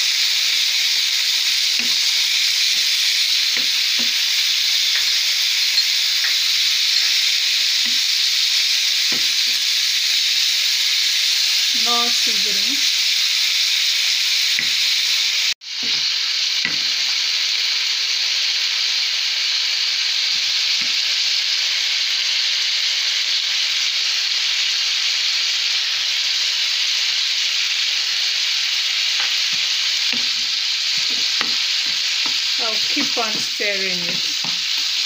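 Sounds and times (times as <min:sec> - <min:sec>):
chicken sizzling in a frying pan: 0:00.0 - 0:35.0
wooden spatula knocking: 0:31.0 - 0:32.4.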